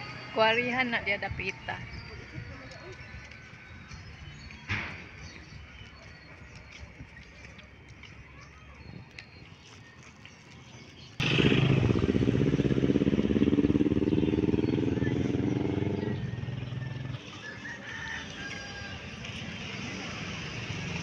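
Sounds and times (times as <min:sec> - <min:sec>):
motorcycle engine running: 0:11.2 - 0:17.2.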